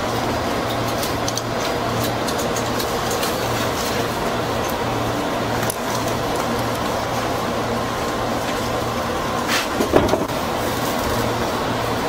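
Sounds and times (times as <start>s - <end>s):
electric train equipment humming: 0.0s - 12.0s.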